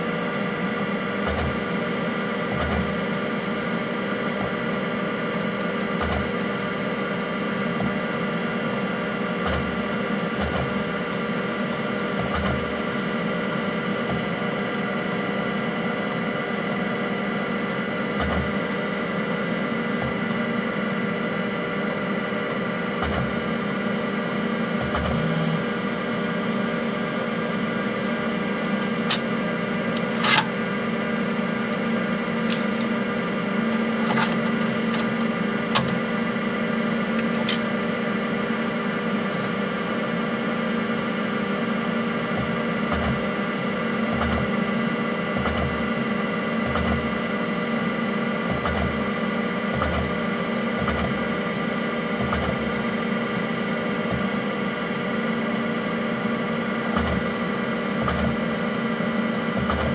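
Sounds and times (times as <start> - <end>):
computer fan and hard disk humming: 0.0 - 59.9
hard drive heads seeking thumps: 28.5 - 30.8, 32.0 - 36.5, 54.0 - 54.4.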